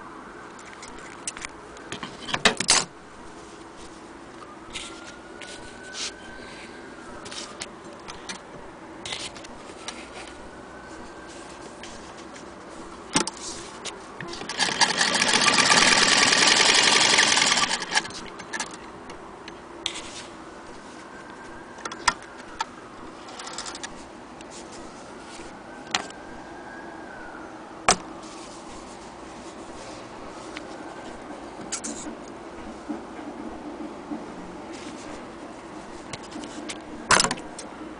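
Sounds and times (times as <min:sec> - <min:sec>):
sewing machine clatter: 0:14.3 - 0:18.8.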